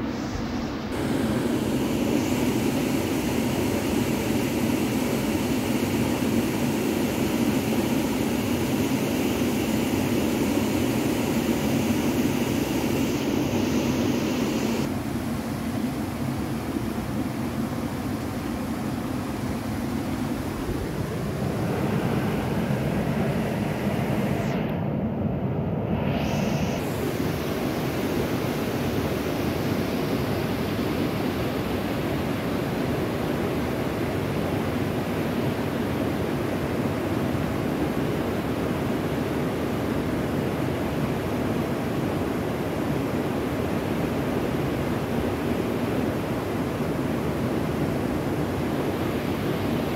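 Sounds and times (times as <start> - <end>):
steady outdoor rushing noise: 0.0 - 49.9.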